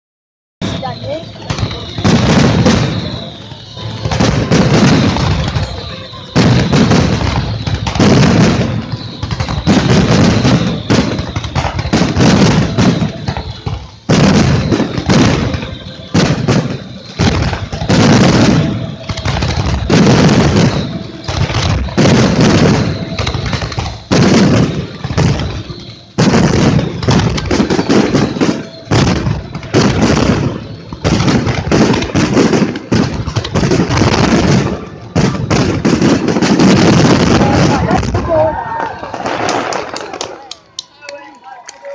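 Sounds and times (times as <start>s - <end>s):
heavy firework booms: 0.6s - 39.9s
firework shells bursting: 0.7s - 38.2s.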